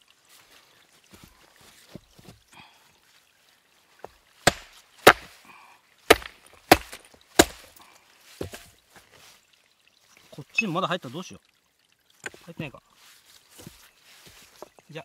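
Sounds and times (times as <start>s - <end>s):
hammer striking chisel on rock: 4.4s - 5.3s, 6.1s - 7.7s.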